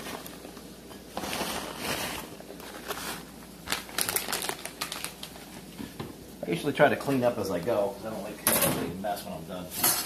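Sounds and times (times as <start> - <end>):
plastic bag rustling and crinkling: 0.0 - 5.9
sharp crackles of bag: 1.2 - 5.5.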